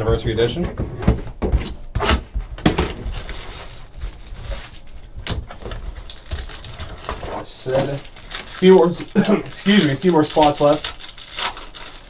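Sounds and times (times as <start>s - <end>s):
plastic wrap crinkling: 2.6s - 12.0s.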